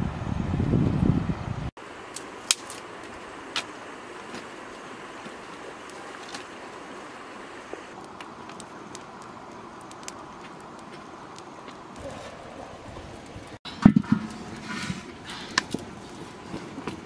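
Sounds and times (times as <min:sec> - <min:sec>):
wind rumble on microphone: 0:00.0 - 0:01.7.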